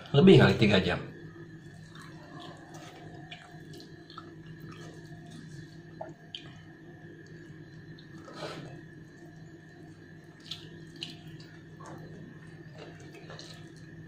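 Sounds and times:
steady low hum: 0.0s - 14.0s
chewing: 1.7s - 6.6s, 10.3s - 14.0s.

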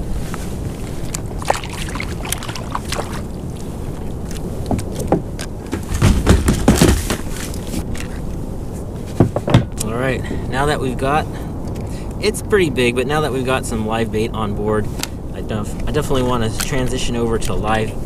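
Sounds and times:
low wind rumble: 0.0s - 18.0s
gear knocking on plastic kayak: 4.7s - 7.6s.

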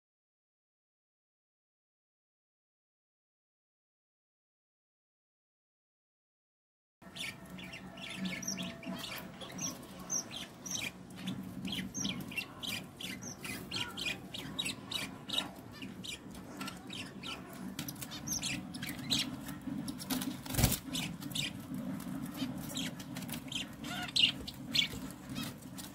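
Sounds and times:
low background hum: 7.0s - 25.9s
budgerigars chirping: 7.1s - 25.9s.

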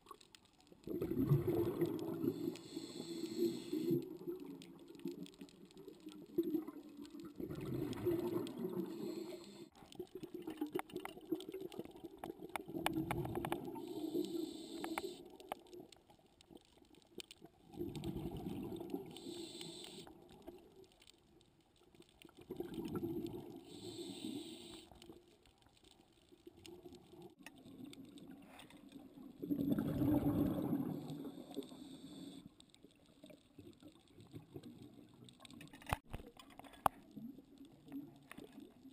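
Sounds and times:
bubbling exhale: 0.9s - 4.6s, 6.4s - 9.8s, 22.5s - 24.9s, 29.4s - 32.5s
diver breathing through regulator: 2.1s - 4.0s, 8.8s - 9.8s, 13.7s - 15.3s, 19.0s - 20.2s, 23.6s - 24.9s.

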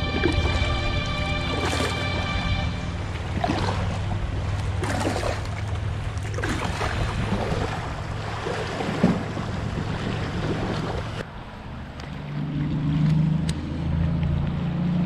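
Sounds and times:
water lapping against kayak hull: 0.0s - 11.2s
wind rumble on microphone: 2.5s - 14.7s.

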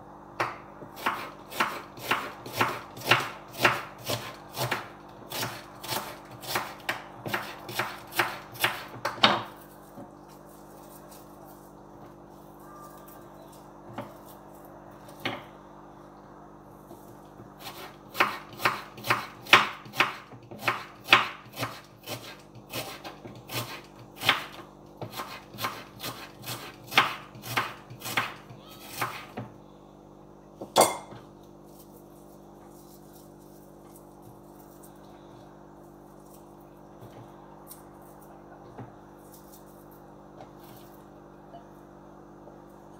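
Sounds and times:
knife chopping on wooden board: 0.4s - 10.1s, 17.6s - 29.5s.

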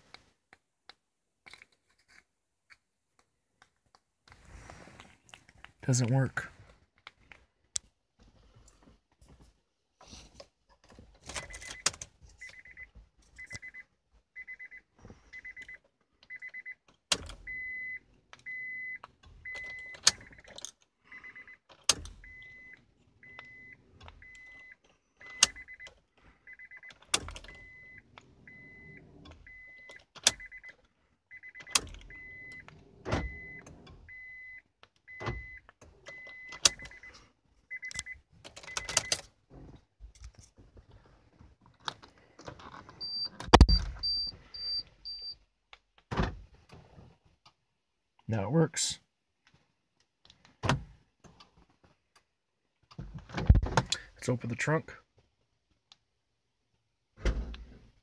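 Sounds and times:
car warning chime beeping: 11.4s - 16.8s, 17.4s - 39.2s, 43.0s - 45.4s
key turning in ignition clicks: 37.8s - 39.3s.

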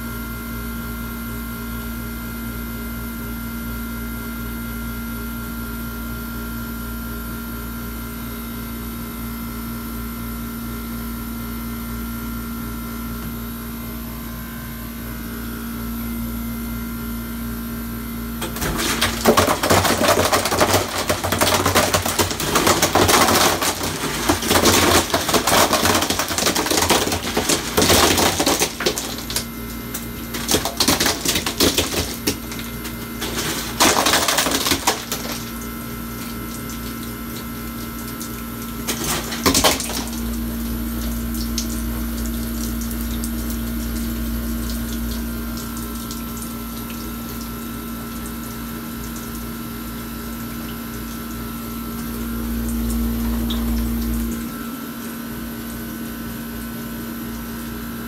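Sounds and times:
machine hum: 13.5s - 48.3s, 49.8s - 57.5s
ice clattering and splashing: 18.4s - 47.8s
water running into bin: 18.4s - 54.7s.

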